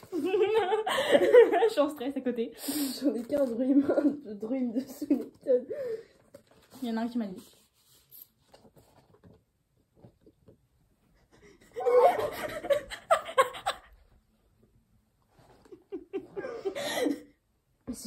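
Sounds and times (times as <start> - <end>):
woman laughing: 0.0 - 1.8, 11.6 - 14.0, 15.7 - 17.3.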